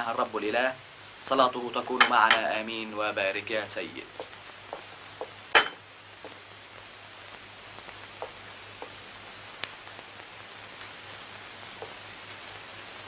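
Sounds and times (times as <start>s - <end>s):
steady hiss and low hum: 0.0s - 13.0s
plates and spoons clinking: 5.6s - 5.8s.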